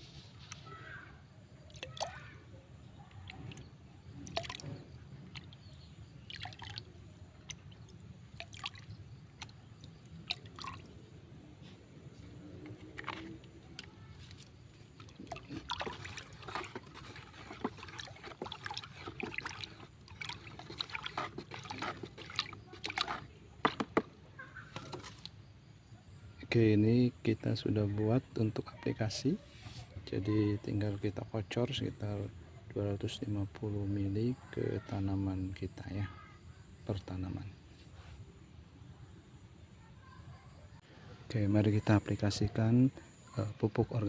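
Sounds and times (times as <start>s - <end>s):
water sloshing while stirred: 1.6s - 25.4s
water dripping into bucket: 1.7s - 2.4s, 3.0s - 11.0s, 12.6s - 24.1s.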